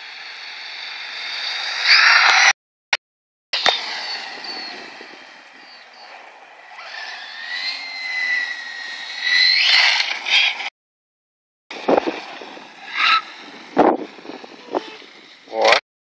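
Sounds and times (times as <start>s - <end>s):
electric motor whine: 3.6s - 10.2s.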